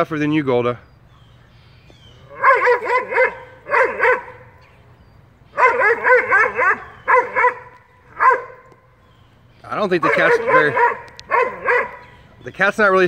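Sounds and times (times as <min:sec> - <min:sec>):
dog barking high yips: 0:02.3 - 0:04.6, 0:05.6 - 0:08.6, 0:10.0 - 0:12.2.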